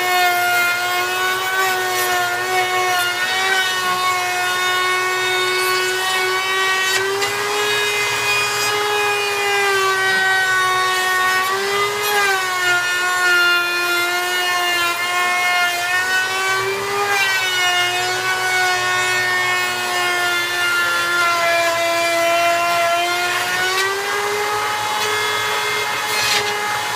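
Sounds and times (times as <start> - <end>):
power tool motor whining: 0.0 - 26.9.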